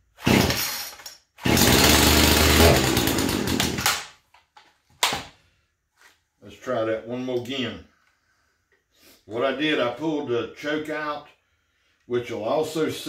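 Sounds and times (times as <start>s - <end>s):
starter rope pull: 0.2s - 4.0s
chainsaw engine running: 0.3s - 0.7s, 1.4s - 3.9s.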